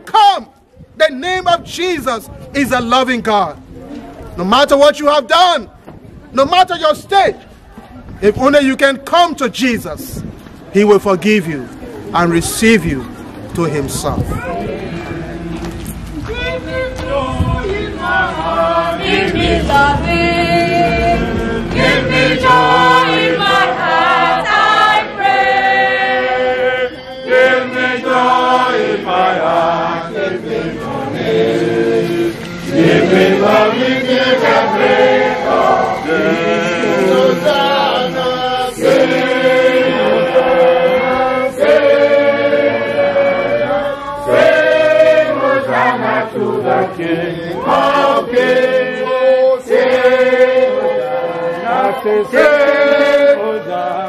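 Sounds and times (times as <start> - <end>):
choir singing a hymn: 14.5 - 54.0.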